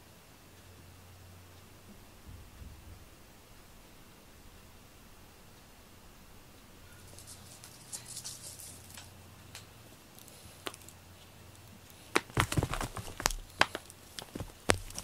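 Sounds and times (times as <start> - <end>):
faint rustle: 6.5 - 15.0
paws scrabbling on floor: 11.9 - 15.0.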